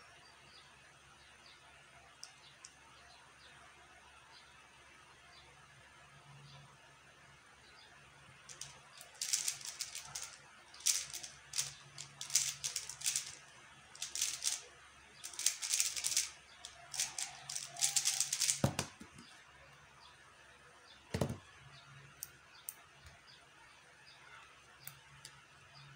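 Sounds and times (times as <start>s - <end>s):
puzzle cube plastic clicking: 8.5s - 13.4s, 14.0s - 19.3s.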